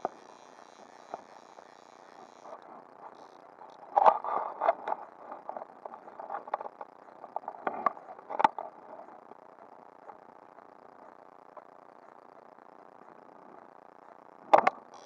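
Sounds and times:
fishing reel clicks and line scrapes: 0:00.0 - 0:08.7.

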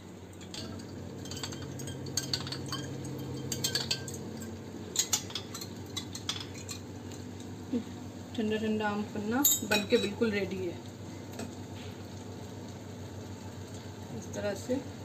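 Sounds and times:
spoon clinking glass and ice: 0:00.4 - 0:06.8.

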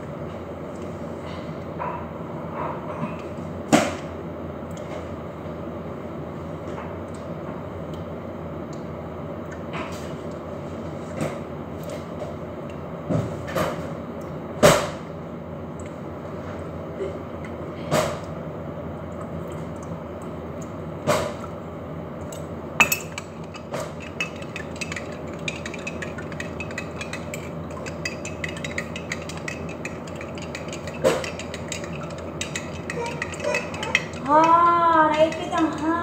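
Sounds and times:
steady low hum: 0:00.0 - 0:36.0
utensils and dishes clinking: 0:22.3 - 0:36.0.

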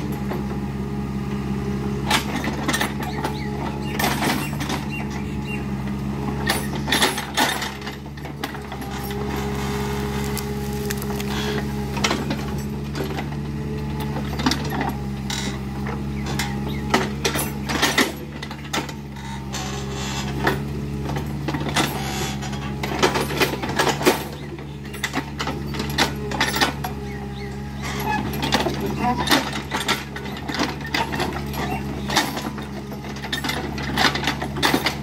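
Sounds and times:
excavator diesel engine running: 0:00.0 - 0:35.0
clanks and knocks from excavator arm: 0:02.0 - 0:05.3, 0:06.3 - 0:35.0.

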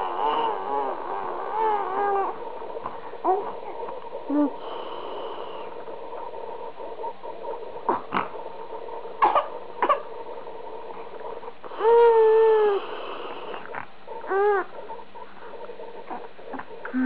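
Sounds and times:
infant whimpering and crying: 0:00.0 - 0:02.4, 0:11.7 - 0:14.8
faint steady hum: 0:00.0 - 0:17.0.

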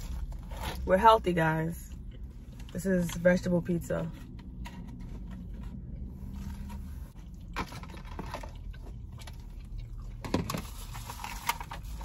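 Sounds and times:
low car cabin hum: 0:00.0 - 0:12.0.

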